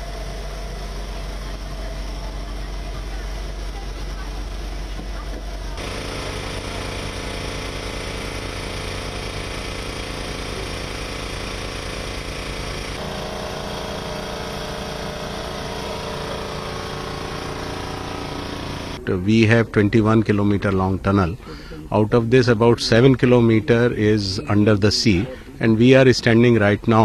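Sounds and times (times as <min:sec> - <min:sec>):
boat engine running: 0:00.0 - 0:20.1.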